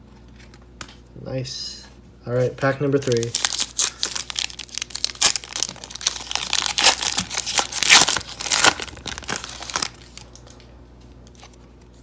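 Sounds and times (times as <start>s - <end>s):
foil wrapper tearing and crinkling: 3.0s - 10.4s.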